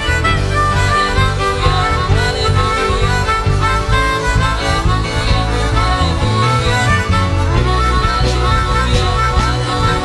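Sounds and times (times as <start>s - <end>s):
reedy melody: 0.0s - 10.0s
steady bass: 0.0s - 10.0s.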